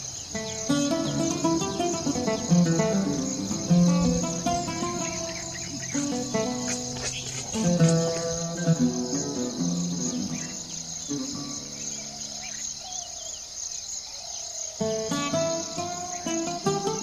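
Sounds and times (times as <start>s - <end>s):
high-pitched insect chorus: 0.0s - 17.0s
plucked-string background music: 0.3s - 12.6s, 14.8s - 17.0s.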